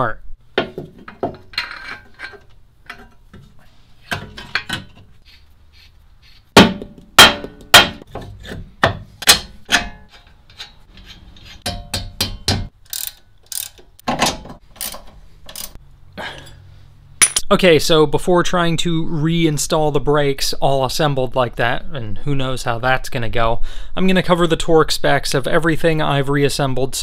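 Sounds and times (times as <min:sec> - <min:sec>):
metal suspension parts clanking: 0:00.6 - 0:05.1, 0:09.2 - 0:15.8, 0:17.2 - 0:17.5
ratchet wrench clicking: 0:12.8 - 0:14.0, 0:14.8 - 0:15.8.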